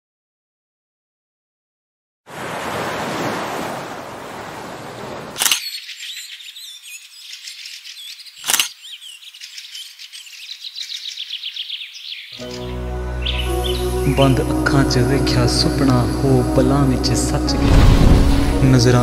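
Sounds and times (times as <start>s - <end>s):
small birds chirping: 5.4s - 14.2s.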